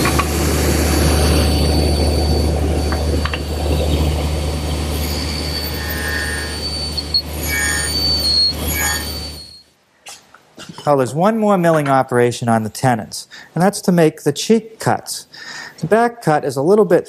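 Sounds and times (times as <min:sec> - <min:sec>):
motor hum and whine: 0:00.0 - 0:09.6
table saw cutting wood: 0:00.0 - 0:09.6.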